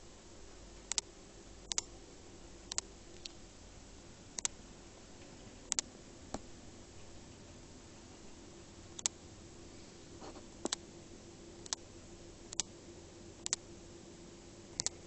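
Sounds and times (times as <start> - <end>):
faint steady hum: 0.0 - 15.0
sharp clicks: 0.9 - 2.0, 2.7 - 3.4, 4.3 - 4.6, 5.7 - 6.5, 9.0 - 9.2, 10.6 - 10.8, 11.6 - 11.8, 12.5 - 12.7, 13.4 - 13.6, 14.8 - 15.0.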